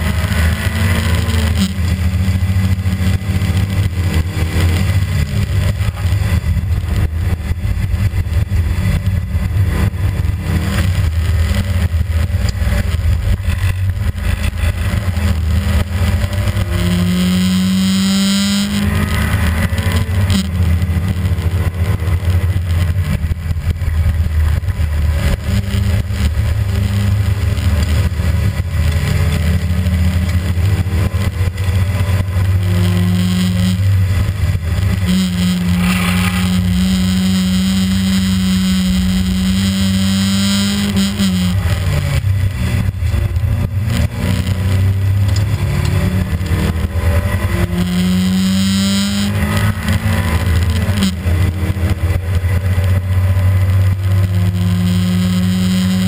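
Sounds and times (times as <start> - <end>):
rally car engine at high revs: 0.0 - 56.0
short rising tone: 35.1 - 38.1.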